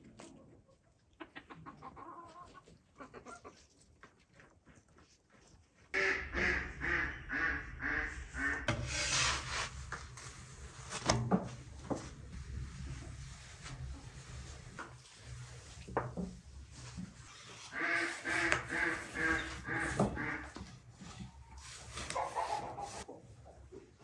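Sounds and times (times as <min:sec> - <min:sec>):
hens clucking: 0:00.2 - 0:03.8, 0:06.0 - 0:08.7, 0:17.7 - 0:23.8.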